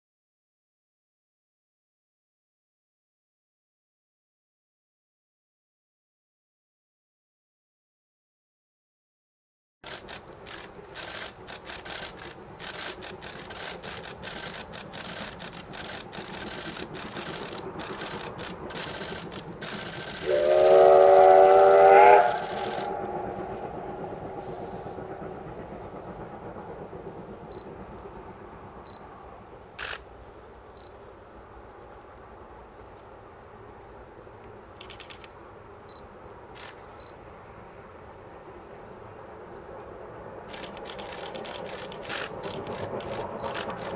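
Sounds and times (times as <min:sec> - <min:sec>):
steam locomotive chuffing: 0:09.8 - 0:30.6, 0:38.3 - 0:43.9
train running rumble: 0:09.8 - 0:43.9
steam whistle blast: 0:20.2 - 0:23.2.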